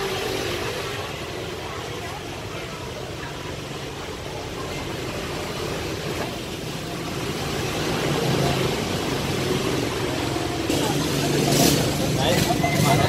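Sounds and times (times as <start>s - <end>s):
road traffic hum: 0.0s - 13.0s.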